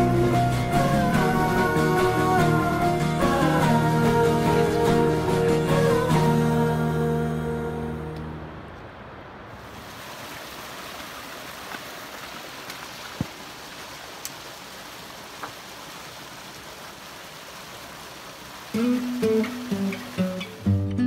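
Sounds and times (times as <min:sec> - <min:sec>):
creek flowing over rock: 0:09.5 - 0:20.8.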